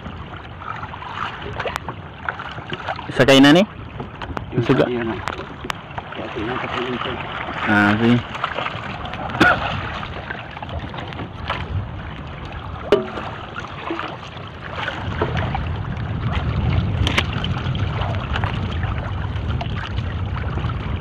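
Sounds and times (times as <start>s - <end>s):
water splashing and dripping: 0.0s - 21.0s
low rumble: 3.7s - 21.0s
sharp knocks: 12.9s - 13.3s.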